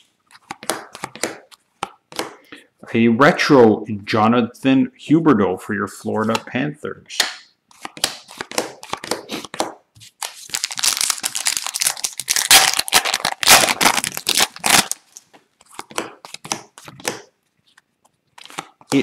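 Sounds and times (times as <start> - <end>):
cards rustling and clicking: 0.2 - 2.4, 7.7 - 19.0
wrapper crinkling and tearing: 10.2 - 15.3.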